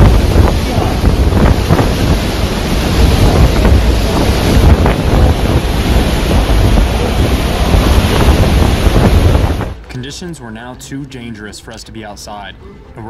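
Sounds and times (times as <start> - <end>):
strong wind buffeting microphone: 0.0 - 10.2.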